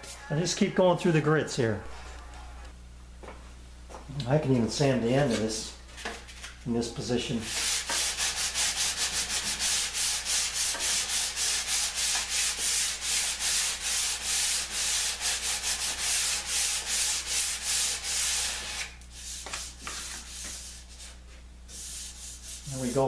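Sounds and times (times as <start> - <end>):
sandpaper rubbing on wood: 7.4 - 23.0.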